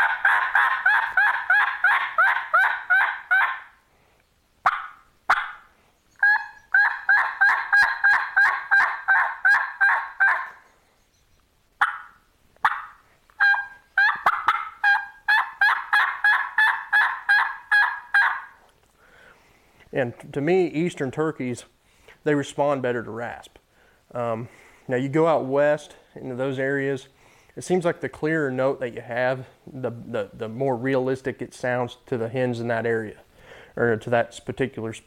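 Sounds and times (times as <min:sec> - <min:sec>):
turkey call hen yelps: 0:00.0 - 0:03.8, 0:04.6 - 0:10.7, 0:11.8 - 0:18.6.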